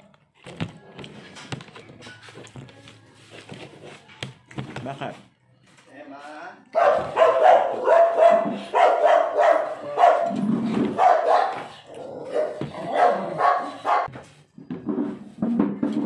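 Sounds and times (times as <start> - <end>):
dog barking: 6.7 - 14.1.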